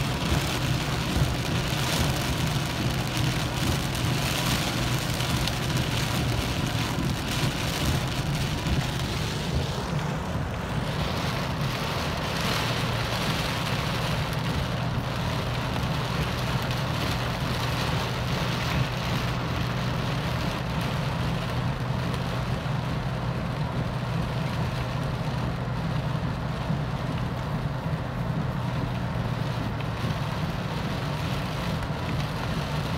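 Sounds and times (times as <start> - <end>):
rain falling on a car: 0.0 - 32.9
vehicle hum: 0.0 - 32.9.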